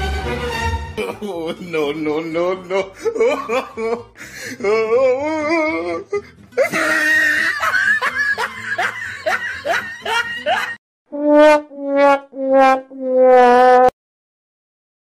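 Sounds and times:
burst of laughter: 6.6 - 10.8.

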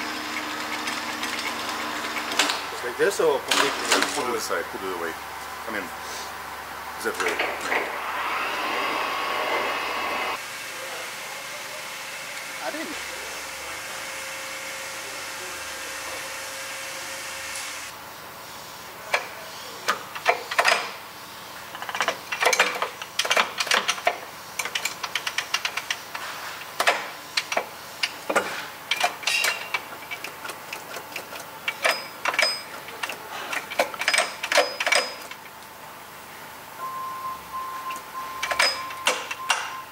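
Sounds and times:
metallic gear clicks and clanks: 21.7 - 35.4, 37.9 - 39.7.

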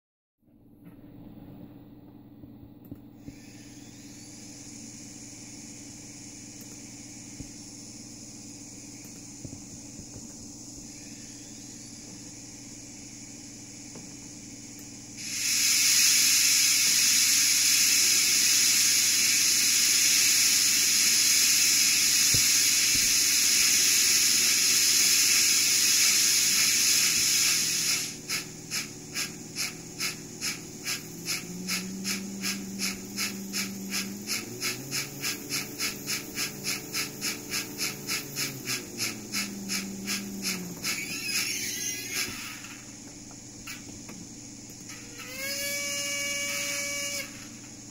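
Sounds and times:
loud steam hiss: 15.1 - 43.0, 44.9 - 47.8
steam locomotive exhaust chuffs: 15.1 - 43.0, 43.7 - 47.9.

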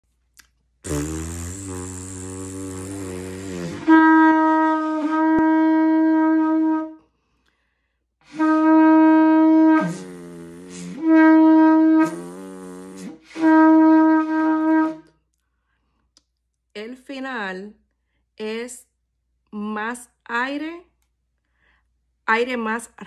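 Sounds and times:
shofar blasts: 0.9 - 7.0, 8.2 - 15.1.

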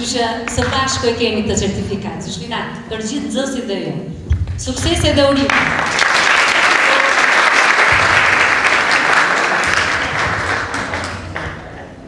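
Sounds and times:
crowd clapping: 5.4 - 11.8.

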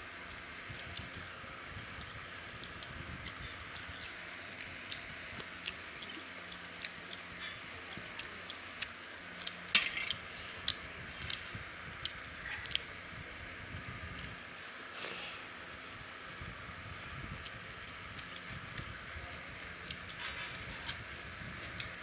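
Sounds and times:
squishy mixing and chewing: 1.9 - 9.7, 10.6 - 22.0
fingers and bangles clicking on plates: 9.8 - 10.2.

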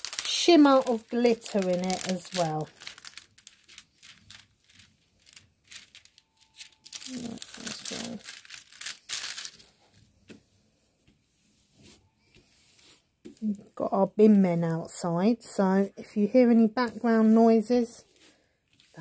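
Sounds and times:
plastic film crinkling: 0.0 - 10.1.

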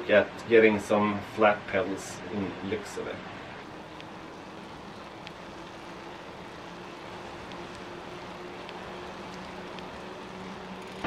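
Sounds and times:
bicycle tyres rolling on asphalt: 0.0 - 11.0
light ticks: 3.6 - 11.0.

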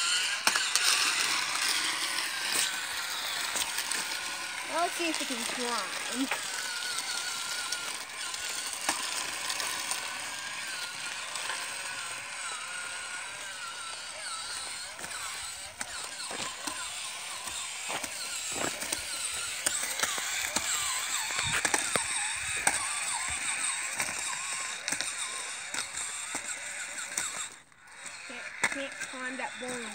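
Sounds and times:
toy electric motors whining: 0.0 - 29.9
wheels clattering against rocks: 0.0 - 29.9.

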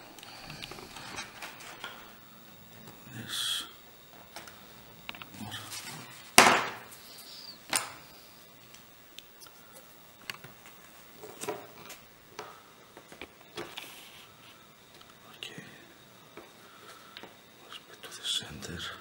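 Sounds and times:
knock on workbench: 6.4 - 6.8.

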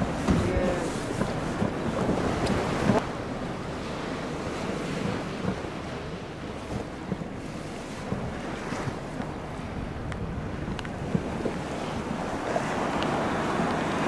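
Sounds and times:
sea water lapping: 0.0 - 14.0
wind buffeting microphone: 0.0 - 14.0.

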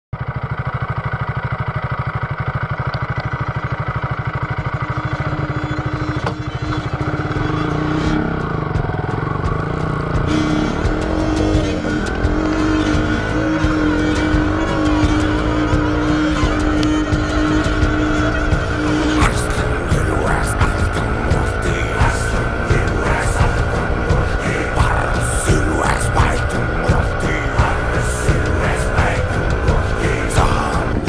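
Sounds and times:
motorcycle engine idling: 0.2 - 31.0
motorcycle riding off: 0.2 - 31.0
music: 4.9 - 31.0.

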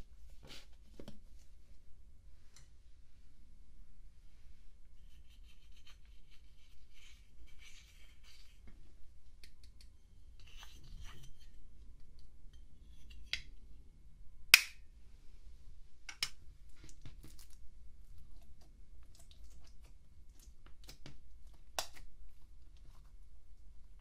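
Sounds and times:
stick scratching eyeshadow powder: 5.0 - 8.6.

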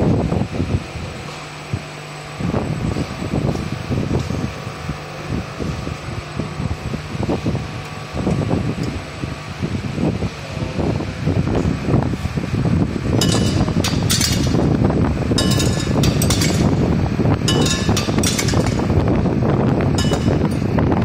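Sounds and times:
conveyor belt whirring: 0.0 - 21.0
tablets clattering on metal chute: 13.2 - 14.6, 15.4 - 16.8, 17.5 - 18.8.

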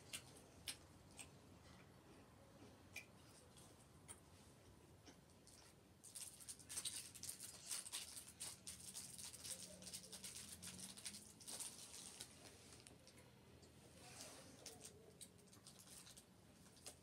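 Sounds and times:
plastic wrapper crinkling: 6.0 - 13.1, 14.6 - 17.0.

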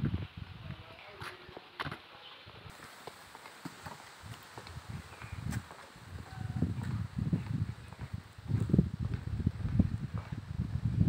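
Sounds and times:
wind buffeting microphone: 0.0 - 1.0, 3.8 - 11.0.

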